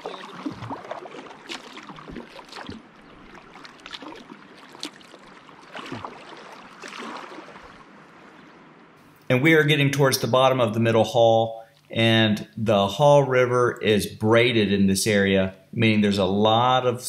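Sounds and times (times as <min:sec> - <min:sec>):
paddle strokes splashing: 0:00.0 - 0:09.1
river current washing: 0:00.0 - 0:09.2.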